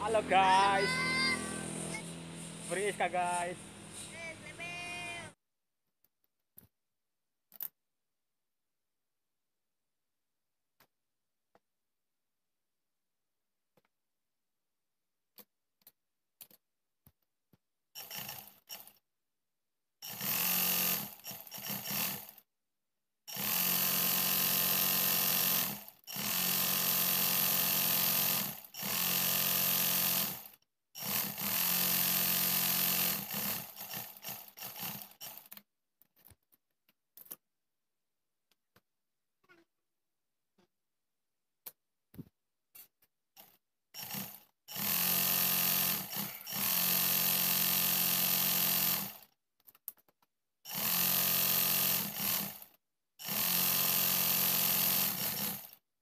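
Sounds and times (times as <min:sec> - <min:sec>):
sewing machine stitching: 0:18.0 - 0:19.0, 0:20.0 - 0:22.4, 0:23.3 - 0:35.6, 0:43.4 - 0:49.3, 0:50.7 - 0:55.8.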